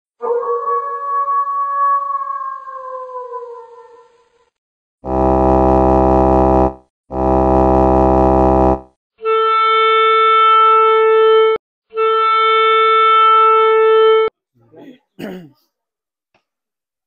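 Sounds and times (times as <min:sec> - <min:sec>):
horn blasts: 0:05.0 - 0:09.6.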